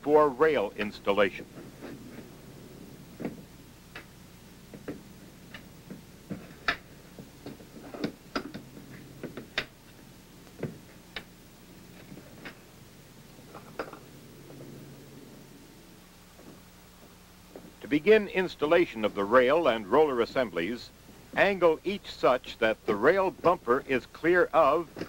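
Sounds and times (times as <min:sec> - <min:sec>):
faint low hum: 0:00.0 - 0:25.0.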